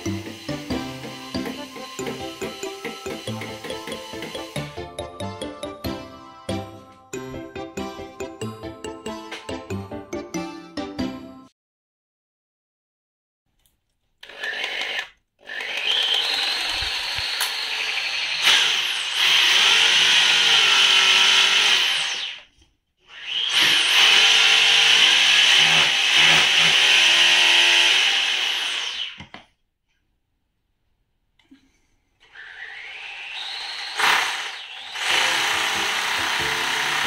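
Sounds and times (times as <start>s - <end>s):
power drill running: 0.0s - 4.8s, 14.2s - 22.4s, 23.1s - 29.2s, 32.2s - 37.0s.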